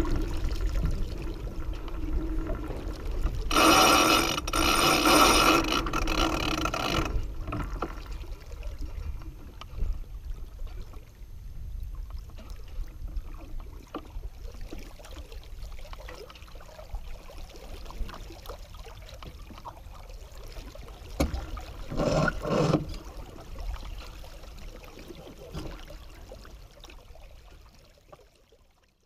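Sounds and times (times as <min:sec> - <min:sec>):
low steady rumble: 0:00.0 - 0:16.0
water rushing along a hull: 0:00.0 - 0:29.0
lines being worked: 0:03.5 - 0:07.7, 0:21.9 - 0:23.0.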